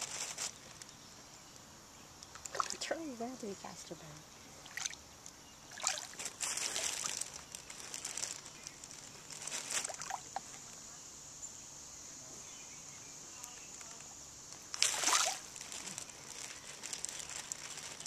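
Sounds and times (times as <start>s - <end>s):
water sloshing and splashing: 2.4s - 3.0s, 4.6s - 5.0s, 5.7s - 7.4s, 9.6s - 10.4s, 14.8s - 15.8s.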